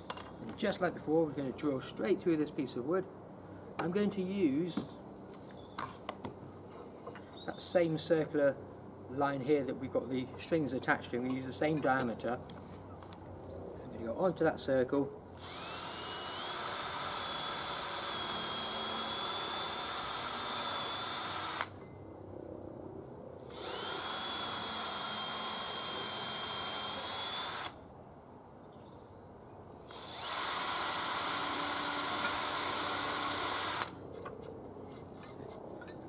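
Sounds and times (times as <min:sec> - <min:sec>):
cordless drill boring wood: 0:15.4 - 0:21.7, 0:23.5 - 0:27.8, 0:29.9 - 0:34.0.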